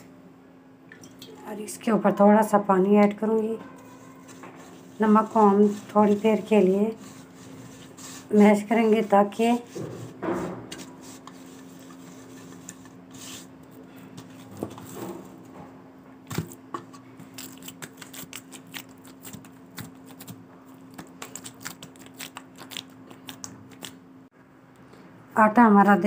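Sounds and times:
dough squelching while kneaded: 0:02.9 - 0:15.5, 0:16.3 - 0:24.1.

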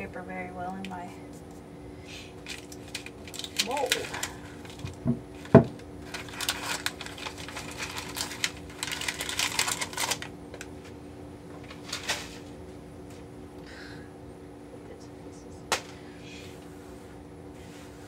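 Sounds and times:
faint steady hum: 0:00.0 - 0:18.0
paper and plastic crinkling: 0:02.4 - 0:11.0, 0:11.6 - 0:12.5.

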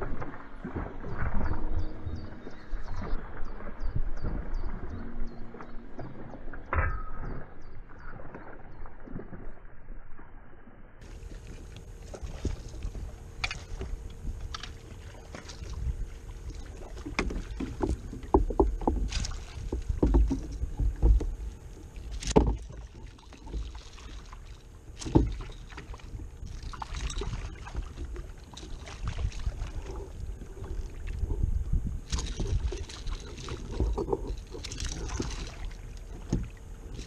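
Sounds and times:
water lapping against kayak hull: 0:00.0 - 0:10.2, 0:11.0 - 0:37.0
wind rumble on microphone: 0:00.0 - 0:10.4, 0:11.0 - 0:23.7, 0:25.0 - 0:37.0
knocks and clicks from fishing gear: 0:12.4 - 0:15.7, 0:17.0 - 0:21.4, 0:22.1 - 0:23.8, 0:25.0 - 0:25.9, 0:32.0 - 0:37.0.

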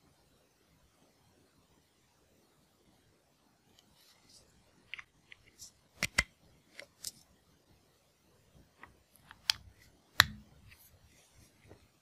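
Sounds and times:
plastic clicks of a charger: 0:06.0 - 0:07.2, 0:09.3 - 0:10.5.

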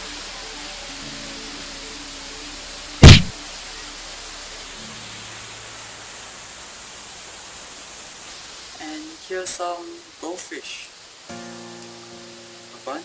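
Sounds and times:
steady hiss: 0:00.0 - 0:13.0
loud short thump: 0:03.0 - 0:03.3.

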